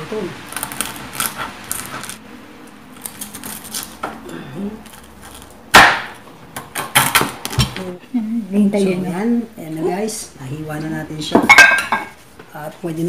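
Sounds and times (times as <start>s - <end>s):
pork skin crackling under knife: 0.4s - 7.8s
knife crunching through pork: 0.5s - 5.9s.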